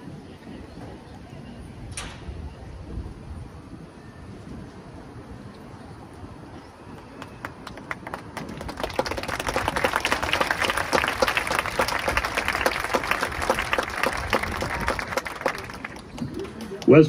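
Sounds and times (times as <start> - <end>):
crowd applauding: 6.9 - 17.0.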